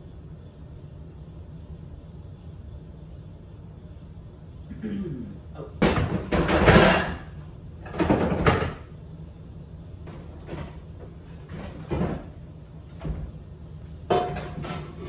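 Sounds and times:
cabinet knocks and clatter: 5.8s - 7.2s, 7.8s - 8.8s, 11.5s - 12.4s.

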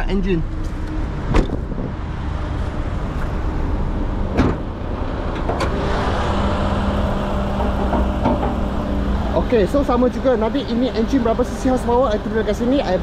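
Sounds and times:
car engine rumble: 0.0s - 13.0s
car bonnet latch clunks: 4.3s - 4.7s.

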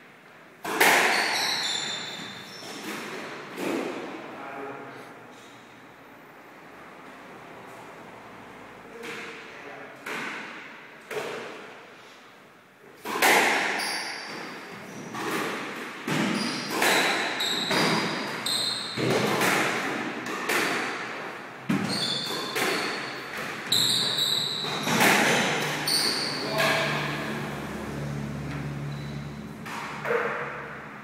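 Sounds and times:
squash ball hitting rackets and walls: 0.0s - 4.2s, 8.8s - 11.9s, 13.0s - 31.0s
shoes squeaking on floor: 1.0s - 3.3s, 13.8s - 15.3s, 16.1s - 19.2s, 21.6s - 27.1s, 28.5s - 30.2s.

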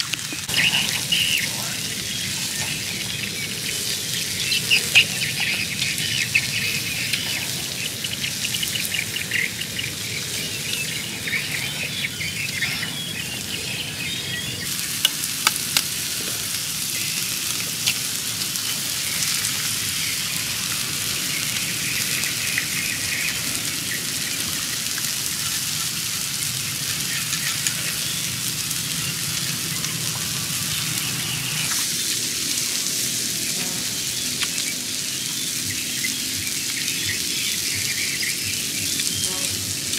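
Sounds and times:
steaks sizzling: 0.0s - 39.9s
sharp pops of frying meat: 14.7s - 39.9s.

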